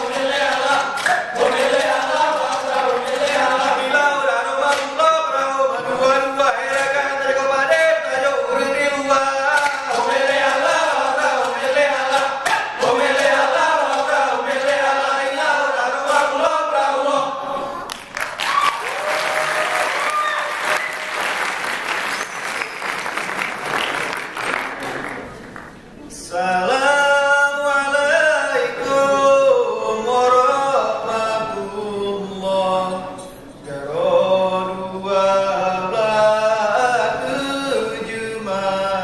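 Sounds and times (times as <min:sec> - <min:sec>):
voices chanting together: 0:00.0 - 0:17.8
applause: 0:17.9 - 0:25.8.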